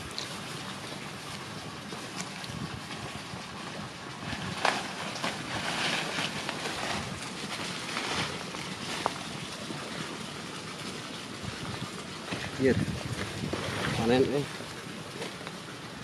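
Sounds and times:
wind noise on microphone: 0:02.4 - 0:04.9, 0:11.4 - 0:14.2
dry leaves rustling and crackling: 0:04.2 - 0:09.9.

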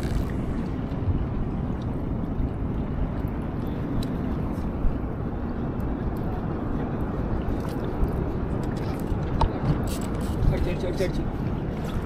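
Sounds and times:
motorboat engine rumbling: 0:00.0 - 0:12.0.

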